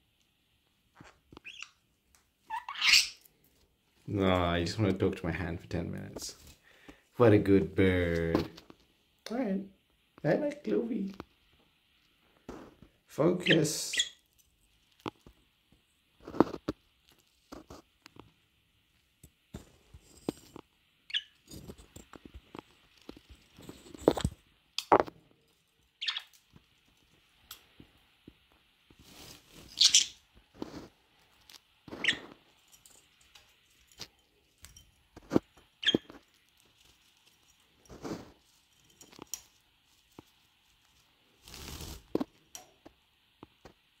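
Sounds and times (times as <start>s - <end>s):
budgerigars chirping: 1.4s - 1.8s, 2.5s - 3.2s, 26.0s - 26.3s, 29.8s - 30.2s.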